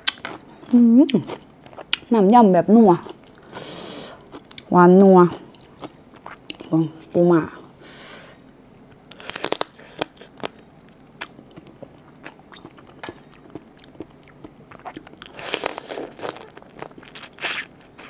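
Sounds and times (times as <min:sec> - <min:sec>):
crab shell crunching and cracking: 0:09.0 - 0:18.0.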